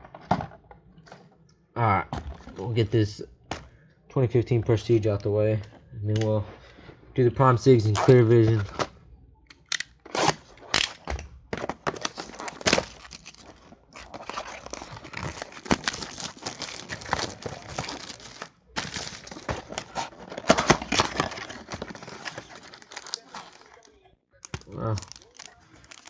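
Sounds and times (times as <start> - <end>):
cardboard box opening: 11.6 - 23.9
cellophane wrap crinkling and tearing: 11.8 - 26.0.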